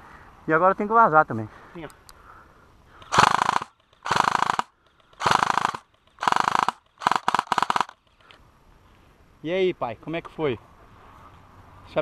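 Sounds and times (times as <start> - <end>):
airsoft rifle bursts: 3.0 - 8.0.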